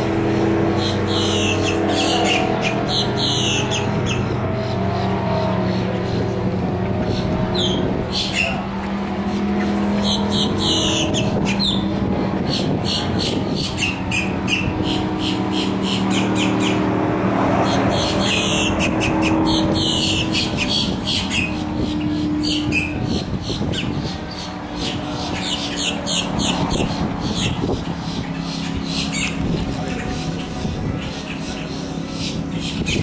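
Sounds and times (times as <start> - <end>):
low engine-like hum: 0.0 - 33.0
squeaky whistled glides: 0.4 - 6.4, 7.0 - 16.9, 17.5 - 33.0
bird calling with dry clicks: 25.2 - 33.0.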